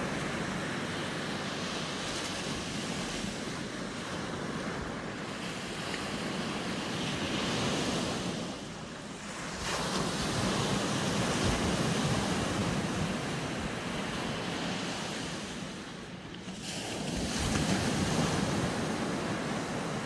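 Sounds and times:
ocean surf washing up beach: 0.0 - 20.0.

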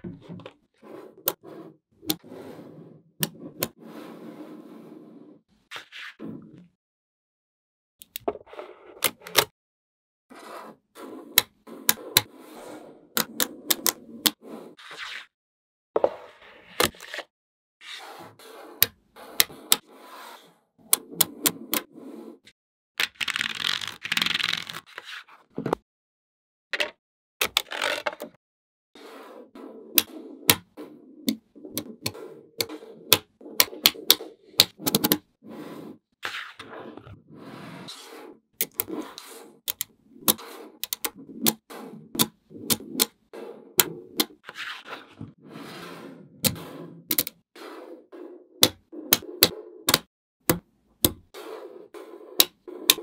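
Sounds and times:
balls scraping on hard surface: 0.0 - 6.7, 10.3 - 15.3, 16.0 - 22.6, 29.0 - 50.1, 51.2 - 53.0.

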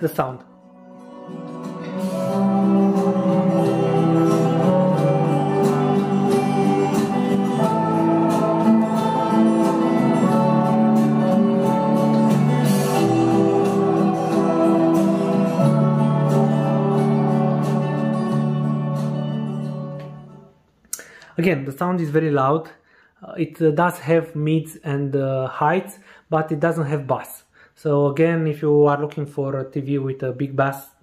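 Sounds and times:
guitar music through tv speakers: 0.5 - 20.5.

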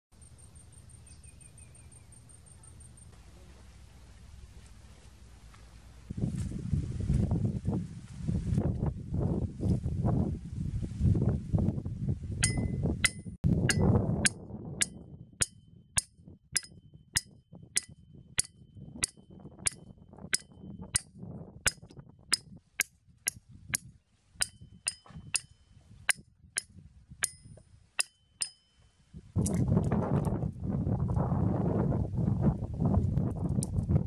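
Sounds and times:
wind rumble on microphone: 3.4 - 28.0, 29.1 - 34.0
hatchet hammering metal stakes: 12.4 - 21.1, 21.7 - 28.8.

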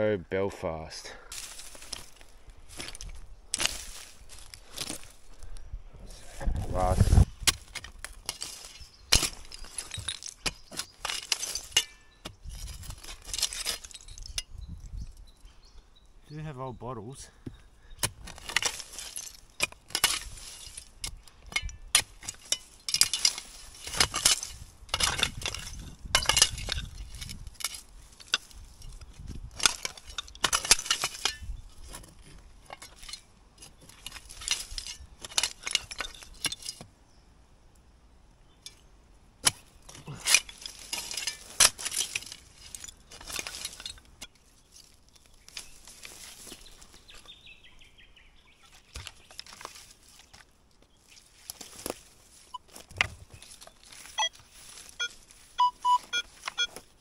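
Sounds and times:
glass bottles clinking and scraping: 8.3 - 14.5, 21.5 - 29.0, 29.6 - 31.6, 32.2 - 36.8, 39.9 - 44.3.

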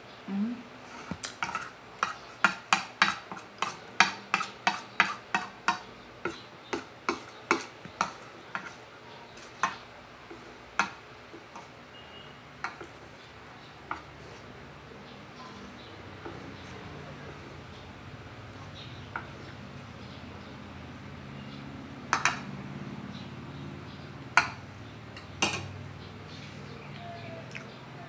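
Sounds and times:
cutlery clinking on a ceramic plate: 22.1 - 22.5, 25.2 - 25.8.

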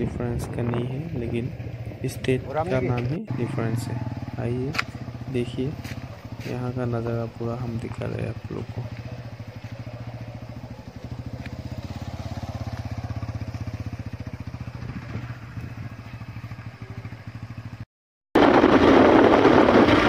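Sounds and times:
wind rushing over microphone: 0.0 - 5.4, 14.3 - 16.3, 18.4 - 20.0
engine idling: 0.6 - 17.8.

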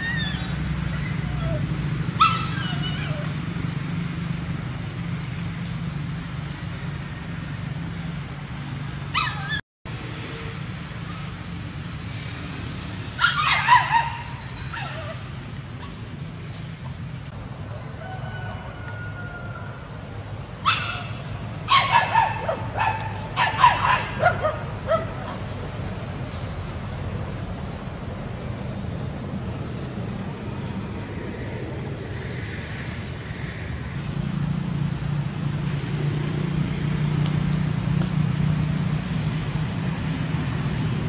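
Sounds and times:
dogs barking and yipping: 0.0 - 3.4, 9.1 - 9.6, 13.2 - 16.0, 20.6 - 25.7
low engine hum: 0.0 - 41.0.

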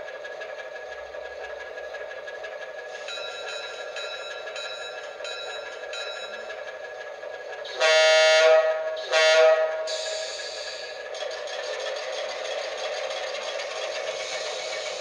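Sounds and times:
model locomotive engine sound: 0.0 - 15.0
bell-like ringing: 2.9 - 6.5
locomotive horn blasts: 7.7 - 10.0
hiss: 9.8 - 11.2, 12.0 - 15.0.

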